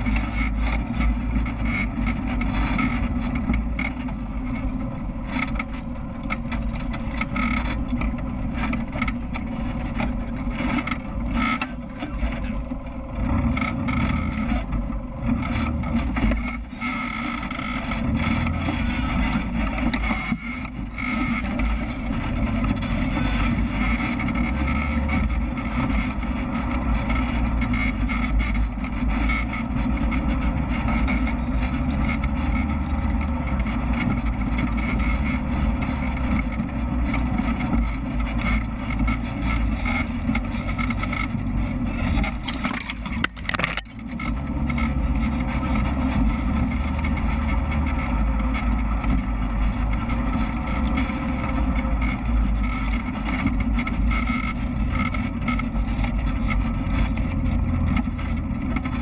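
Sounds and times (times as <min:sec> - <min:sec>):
off-road vehicle engine rumbling: 0:00.0 - 0:59.0.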